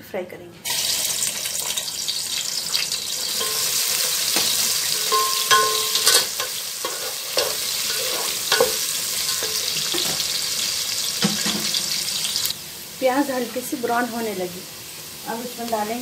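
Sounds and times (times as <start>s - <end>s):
onions sizzling in oil: 0.6s - 16.0s
utensil scraping and clinking on pot: 3.3s - 10.3s.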